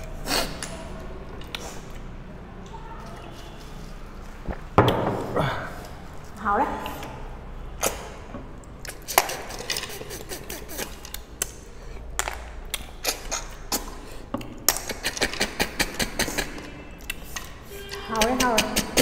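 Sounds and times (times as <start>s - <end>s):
wet sucking sounds: 0.0s - 2.2s, 8.8s - 12.1s, 12.7s - 19.0s.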